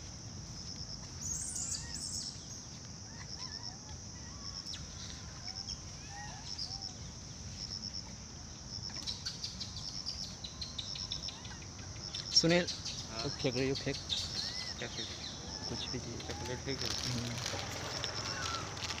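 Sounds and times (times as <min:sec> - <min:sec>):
pulsed insect chirps: 0:08.7 - 0:19.0
short bird calls: 0:09.0 - 0:19.0
high insect buzz: 0:12.0 - 0:19.0.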